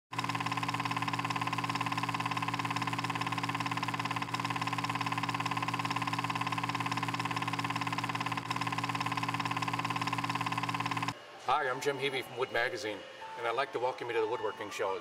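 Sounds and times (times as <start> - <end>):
film projector clatter: 0.1 - 11.2.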